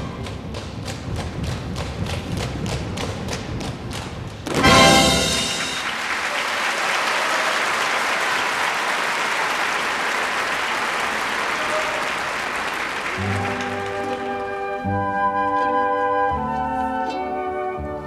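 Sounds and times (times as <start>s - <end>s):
music playing: 4.5s - 6.0s, 13.2s - 18.0s
audience applauding: 4.5s - 14.8s.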